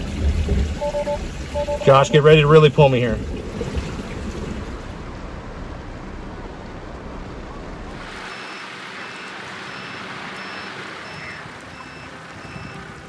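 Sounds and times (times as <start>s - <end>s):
water sloshing around a car: 0.0s - 13.0s
faint repeating beeps: 0.8s - 2.1s.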